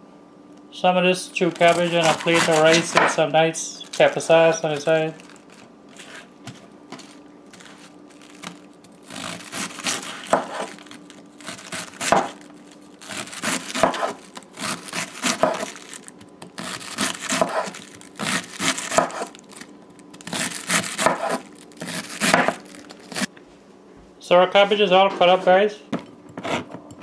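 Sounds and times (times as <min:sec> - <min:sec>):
knife shredding cabbage on board: 0:01.6 - 0:03.2, 0:05.9 - 0:12.4, 0:13.0 - 0:16.0, 0:16.6 - 0:19.4, 0:20.3 - 0:23.3.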